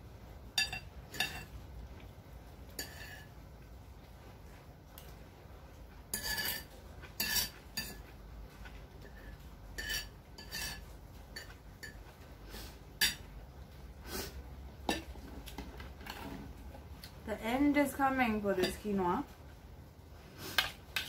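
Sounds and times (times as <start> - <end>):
cutlery scraping a plate: 0.6 - 1.6, 2.7 - 3.4, 6.1 - 8.1, 9.0 - 12.1.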